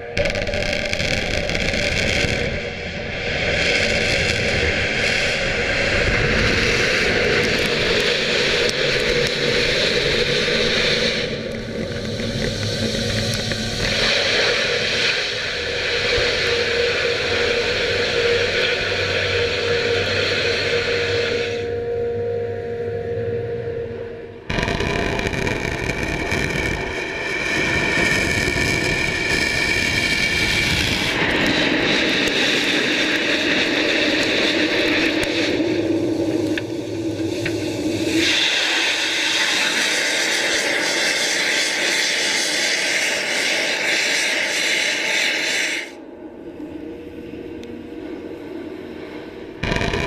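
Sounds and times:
rocket engine roaring: 0.0s - 50.0s.

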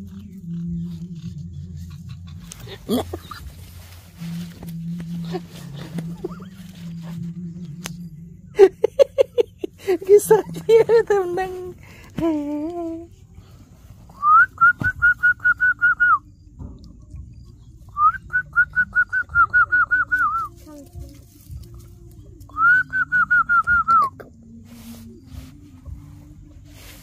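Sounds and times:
rapid whistled notes: 14.1s - 16.4s, 17.6s - 20.6s, 22.5s - 24.3s.

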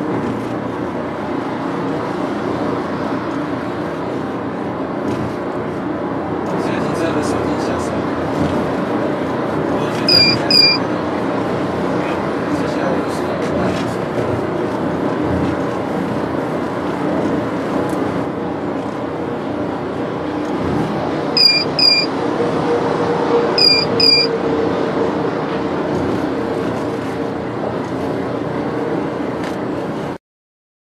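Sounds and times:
car road and engine noise: 0.0s - 30.2s
short high beeps: 10.1s - 10.9s, 21.4s - 22.1s, 23.6s - 24.3s.

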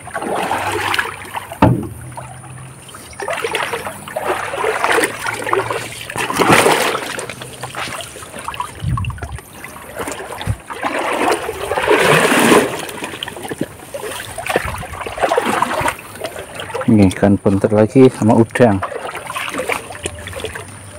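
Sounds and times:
river water splashing: 0.0s - 20.9s
low thumps: 1.5s - 2.7s.

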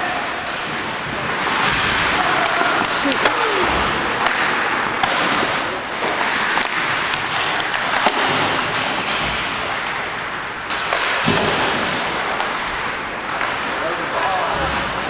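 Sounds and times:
hockey sticks and puck clacking: 0.0s - 15.0s
skate blades hissing on ice: 5.2s - 8.0s.

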